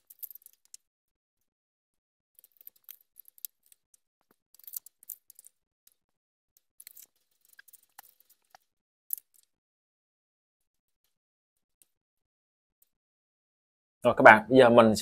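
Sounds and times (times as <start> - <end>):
plastic film crinkling: 6.8 - 9.5.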